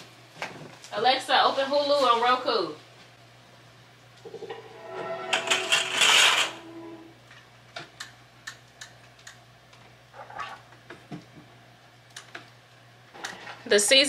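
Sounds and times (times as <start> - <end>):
window blinds rattling: 5.4 - 6.6.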